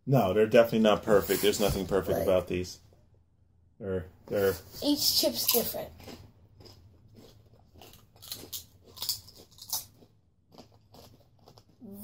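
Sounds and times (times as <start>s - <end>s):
potato chips crunching: 5.4s - 11.8s.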